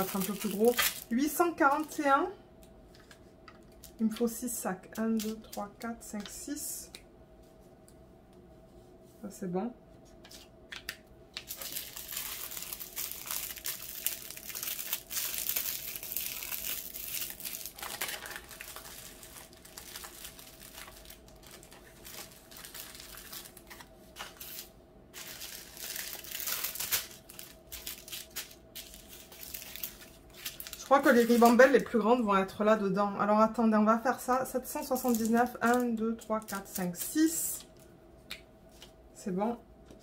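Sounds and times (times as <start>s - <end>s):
plastic bags crinkling: 0.0s - 2.0s, 11.4s - 31.9s, 34.8s - 37.1s.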